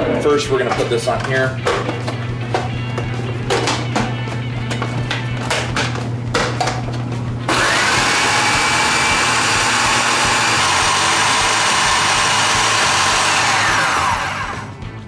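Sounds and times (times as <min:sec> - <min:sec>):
food processor motor whining: 0:07.5 - 0:14.9.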